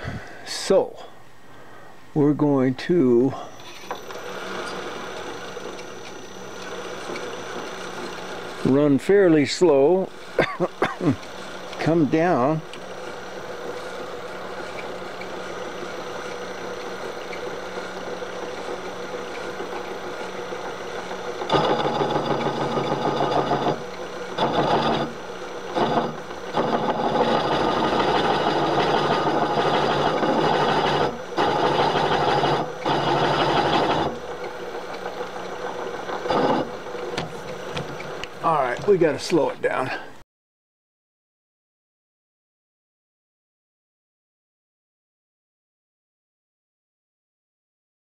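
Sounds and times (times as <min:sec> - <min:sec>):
milling machine spindle running: 0:03.1 - 0:40.0.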